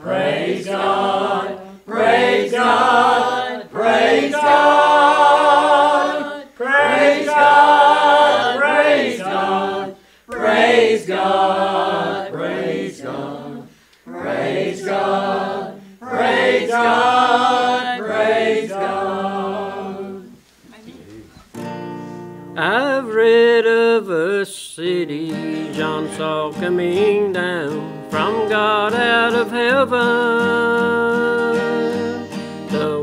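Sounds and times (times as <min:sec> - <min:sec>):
choir singing unaccompanied: 0:00.0 - 0:20.4.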